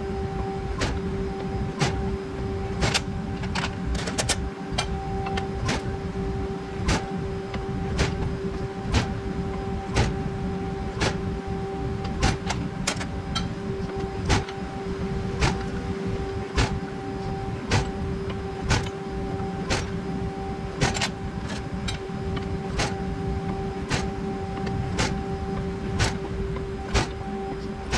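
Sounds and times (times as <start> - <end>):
press brake humming: 15.4 - 20.0
sharp clicks: 26.9 - 27.2.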